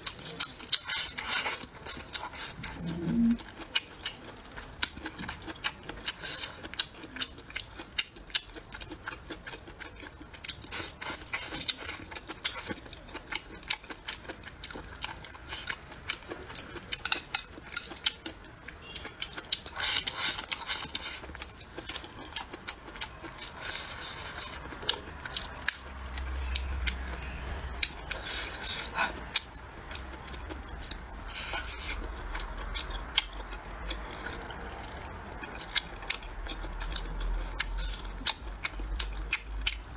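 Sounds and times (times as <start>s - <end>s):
chewing and mouth smacks: 19.0s - 39.9s.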